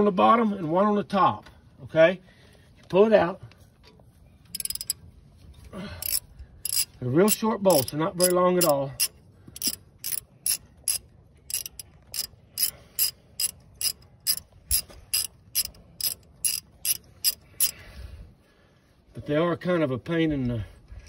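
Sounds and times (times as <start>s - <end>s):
ratchet wrench clicking: 4.5s - 5.0s, 6.0s - 17.8s.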